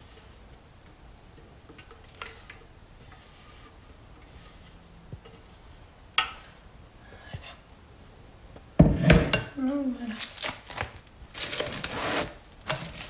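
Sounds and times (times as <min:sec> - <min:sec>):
spatula scraping a mixing bowl: 0:02.1 - 0:05.8.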